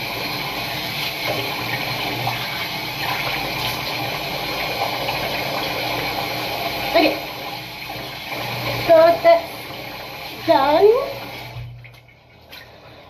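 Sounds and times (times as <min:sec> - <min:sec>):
tap water running into sink: 0:00.0 - 0:13.0.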